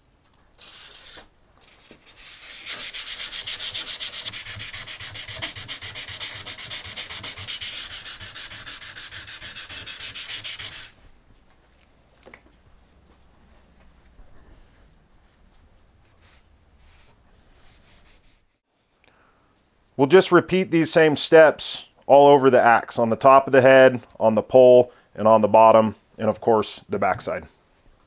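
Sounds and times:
sandpaper rubbing on steel: 0.6s - 1.3s, 2.0s - 11.0s, 17.7s - 18.6s.

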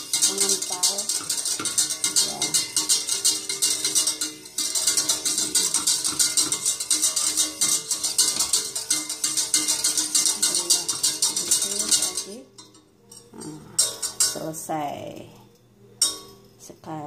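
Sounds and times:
wire whisk rattling in metal pot: 0.0s - 17.0s.

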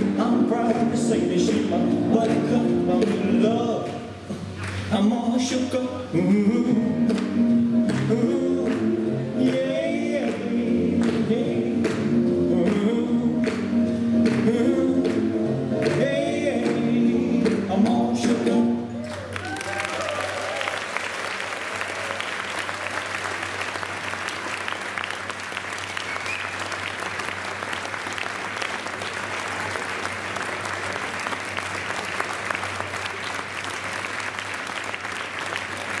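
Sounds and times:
audience applauding: 4.5s - 5.0s, 19.0s - 36.0s.

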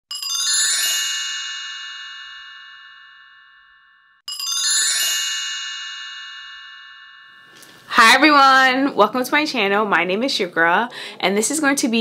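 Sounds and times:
bright bell-like chime: 0.1s - 8.0s.

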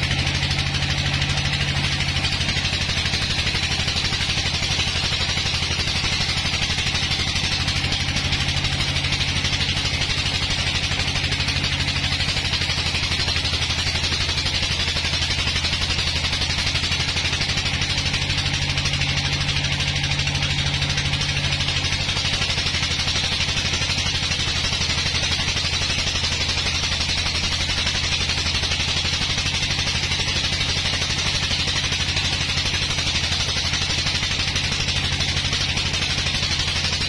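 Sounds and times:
band saw machine drone: 0.0s - 37.0s.

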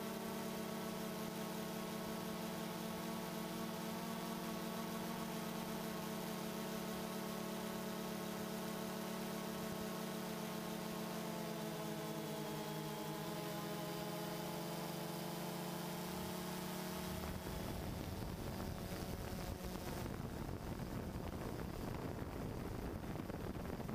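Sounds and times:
quadcopter propellers humming: 0.0s - 23.9s
wind buffeting microphone: 17.1s - 23.9s.

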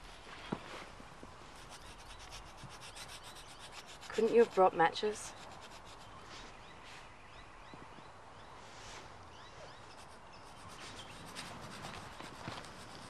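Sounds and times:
wood rubbing against wood: 1.6s - 6.2s, 9.9s - 13.0s.

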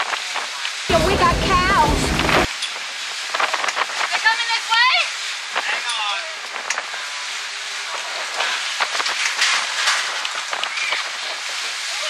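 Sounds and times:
wind and rain rushing: 0.0s - 12.0s
sharp crackling hits: 0.9s - 2.6s.

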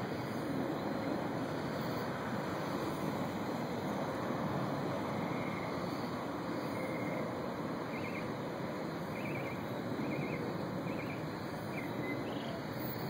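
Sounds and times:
steady rushing noise: 0.0s - 13.0s.

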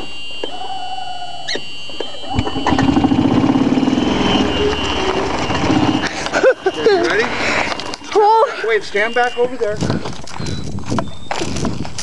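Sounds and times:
golf cart engine running: 2.3s - 8.4s.

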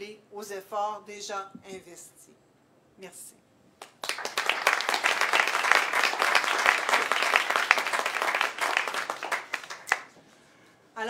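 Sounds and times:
audience applauding: 3.8s - 10.2s.

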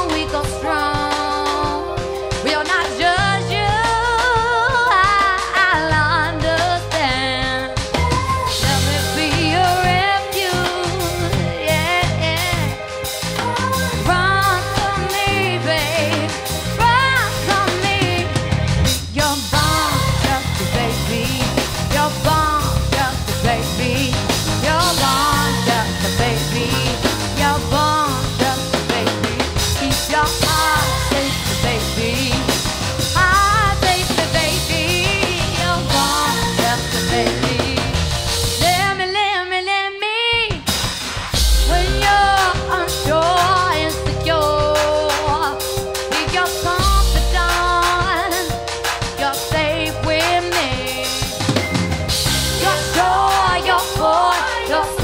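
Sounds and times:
woman singing: 0.0s - 40.7s, 41.4s - 51.4s, 52.5s - 55.0s
soul band playing: 0.0s - 55.0s.

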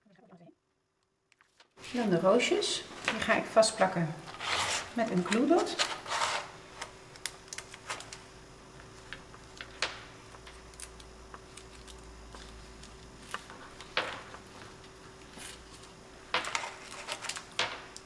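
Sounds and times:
faint steady hum: 0.0s - 18.0s
clicks and crinkles of plastic strip: 1.3s - 1.8s, 6.8s - 8.2s.

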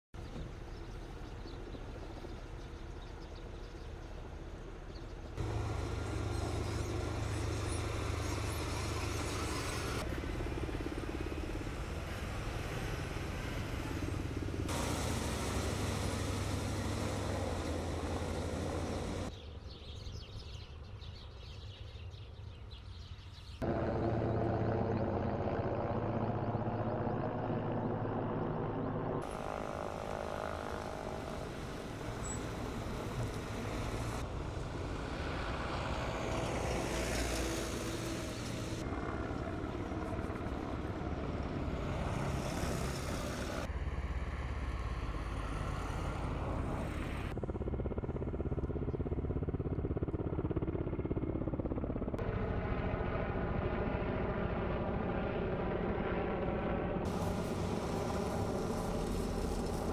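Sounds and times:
armoured vehicle engines humming: 0.2s - 19.3s, 23.6s - 47.4s, 57.1s - 59.9s
road noise: 0.2s - 20.0s, 23.6s - 47.4s, 57.0s - 59.9s.

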